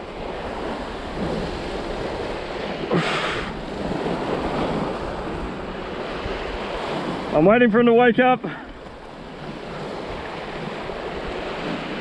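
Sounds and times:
surf washing on rocks: 0:00.0 - 0:12.0
wind buffeting microphone: 0:00.0 - 0:12.0.

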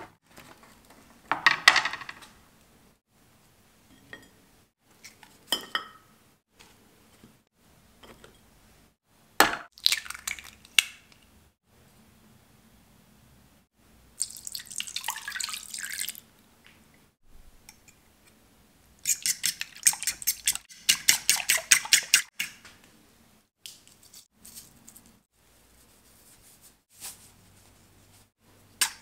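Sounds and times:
fork beating egg in bowl: 0:19.0 - 0:22.6.

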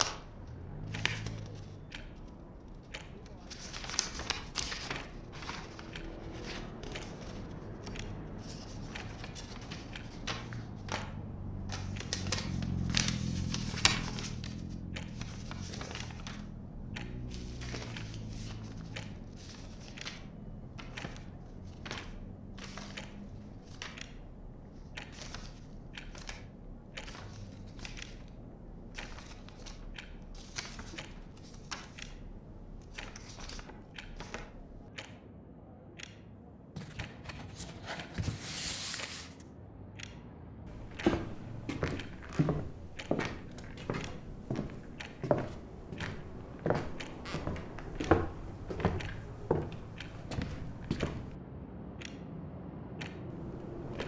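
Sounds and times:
street traffic rumble: 0:00.0 - 0:54.0
paper rustling and crinkling: 0:03.3 - 0:16.4, 0:36.8 - 0:39.4.

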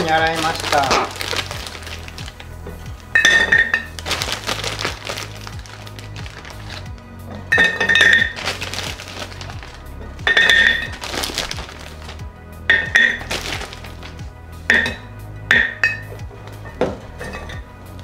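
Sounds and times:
background music: 0:00.0 - 0:18.0
plums clinking into glass jar: 0:03.2 - 0:04.0, 0:07.3 - 0:08.4.

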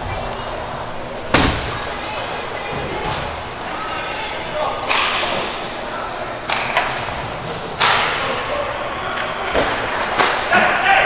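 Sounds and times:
hockey stick and puck cracks: 0:09.1 - 0:10.7.

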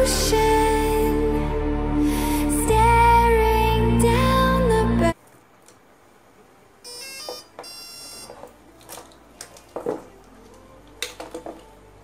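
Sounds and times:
motor power-up beeps: 0:06.9 - 0:08.3.

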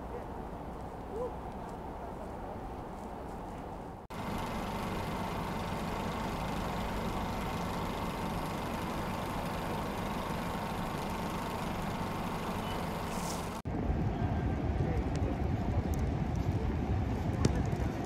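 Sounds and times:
city noise: 0:00.0 - 0:18.0
vehicle engine idling: 0:04.1 - 0:13.6.

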